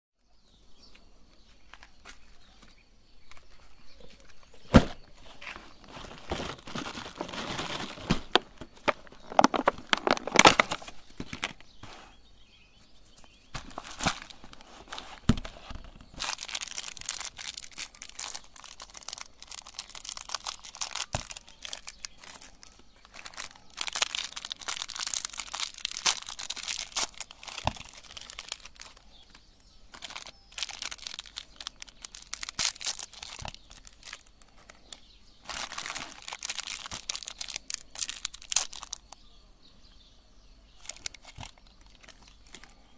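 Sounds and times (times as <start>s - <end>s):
plastic candy wrappers crinkling: 5.8s - 11.6s, 13.6s - 39.2s, 40.8s - 42.9s.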